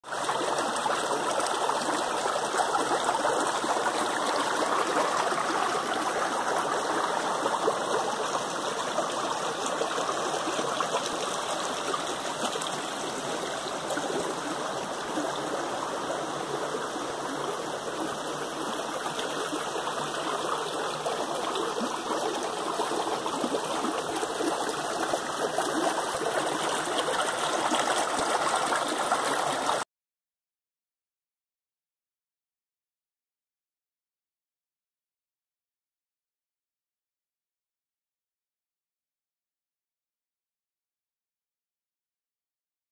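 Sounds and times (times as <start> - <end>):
creek water over rocks: 0.0 - 29.8.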